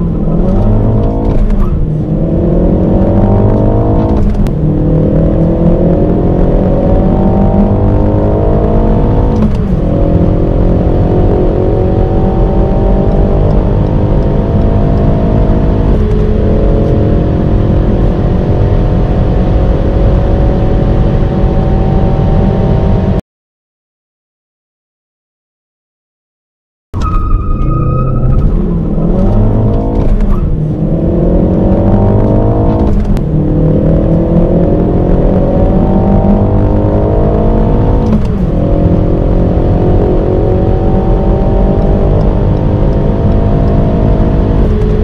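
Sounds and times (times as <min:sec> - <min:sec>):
car engine accelerating: 0:00.0 - 0:23.2, 0:27.0 - 0:45.0.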